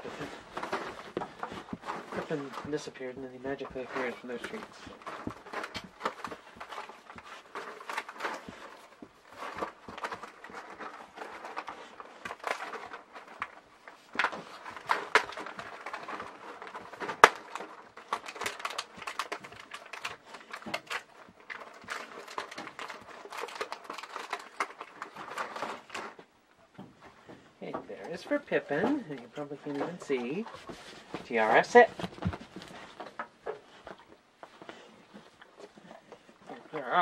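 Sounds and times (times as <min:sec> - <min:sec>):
packaging crinkling: 0:00.0 - 0:26.3.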